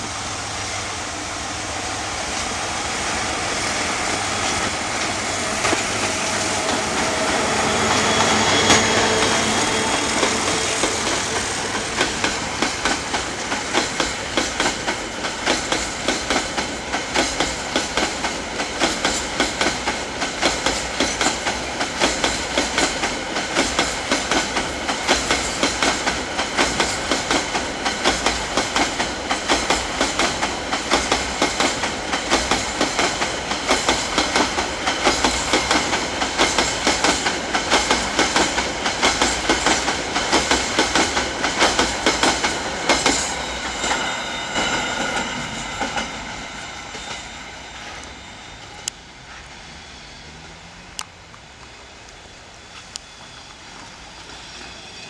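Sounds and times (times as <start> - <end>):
train wheels clattering over rail joints: 3.4 - 46.3.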